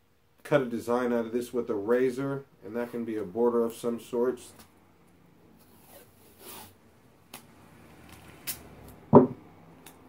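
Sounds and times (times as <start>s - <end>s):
tape roll knocking on table: 9.1s - 9.4s.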